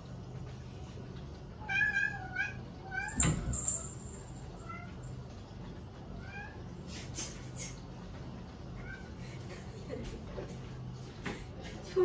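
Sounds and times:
cat meowing: 0:01.6 - 0:03.2.

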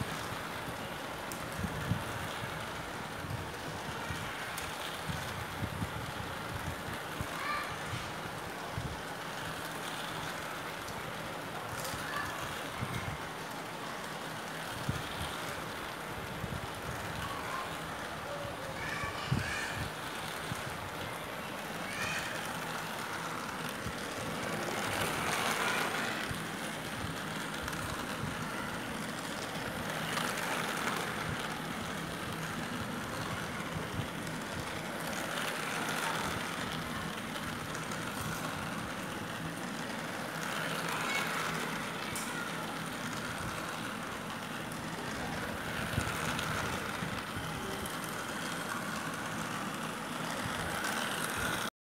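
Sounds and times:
toy train whirring on track: 0:00.0 - 0:51.7.

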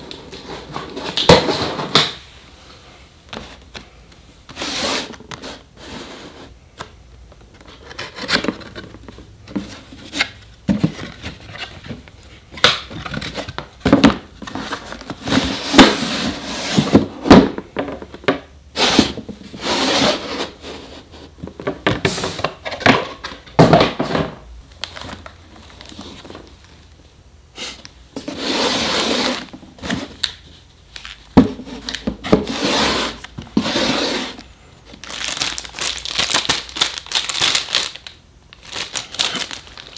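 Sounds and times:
cardboard boxes rubbing and sliding: 0:04.5 - 0:06.6, 0:14.4 - 0:17.3, 0:18.8 - 0:21.3, 0:28.2 - 0:30.1, 0:31.6 - 0:34.4.

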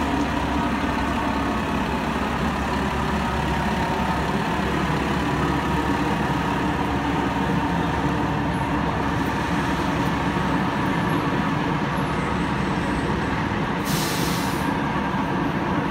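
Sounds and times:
diesel engine idling: 0:00.0 - 0:15.9
air brake hiss: 0:13.8 - 0:14.8.

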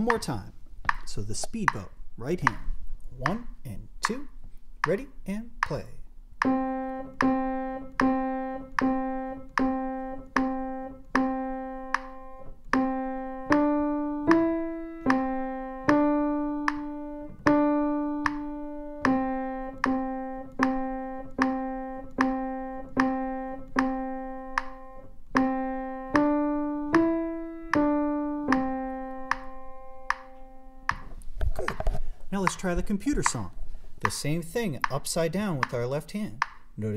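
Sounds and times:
slow piano melody: 0:06.4 - 0:32.6.

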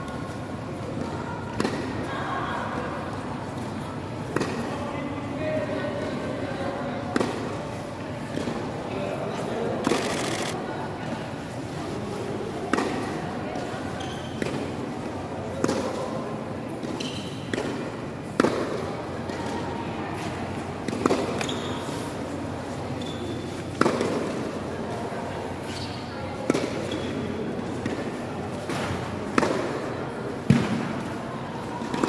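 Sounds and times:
voices chattering: 0:04.8 - 0:12.4
tennis balls struck by rackets: 0:07.1 - 0:07.6, 0:17.5 - 0:19.4, 0:20.9 - 0:21.5, 0:23.7 - 0:24.4, 0:26.4 - 0:27.0, 0:27.7 - 0:31.1.

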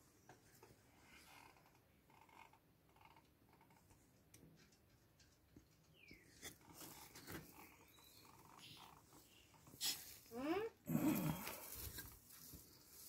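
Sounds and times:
faint rustles and ticks: 0:00.0 - 0:13.0
rustle of moss and soil: 0:10.9 - 0:13.0.

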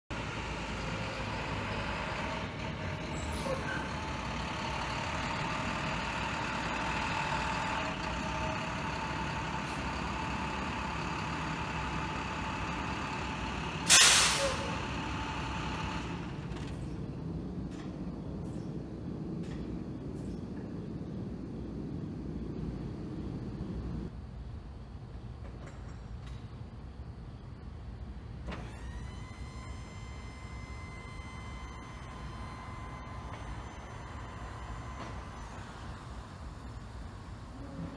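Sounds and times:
truck engine running: 0:00.1 - 0:24.1
air brakes hissing: 0:13.8 - 0:15.0.

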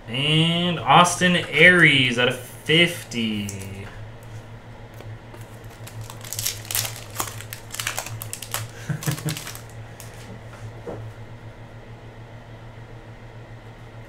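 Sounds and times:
cards being handled: 0:03.4 - 0:04.4, 0:05.0 - 0:10.3
foil wrapper crinkling and tearing: 0:05.4 - 0:10.2.

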